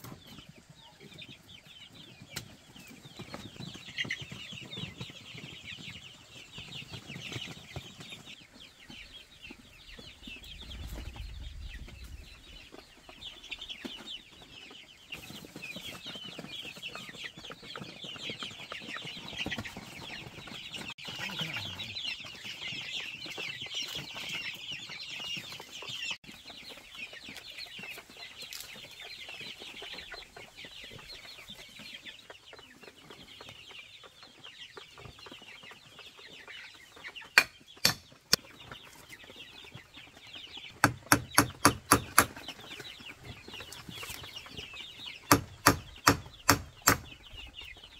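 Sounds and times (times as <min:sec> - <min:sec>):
chickens clucking and cheeping: 0:00.0 - 0:47.9
tool hitting wooden stake: 0:37.4 - 0:38.2, 0:40.8 - 0:42.4, 0:45.3 - 0:47.1.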